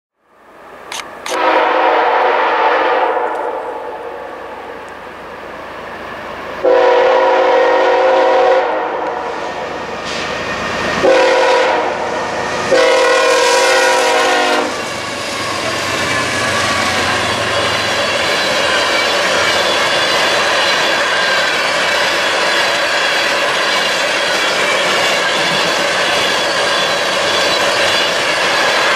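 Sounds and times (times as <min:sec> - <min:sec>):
locomotive air horn: 0:01.3 - 0:04.6, 0:06.6 - 0:10.2, 0:11.0 - 0:14.8
train wheel clatter: 0:12.4 - 0:28.9.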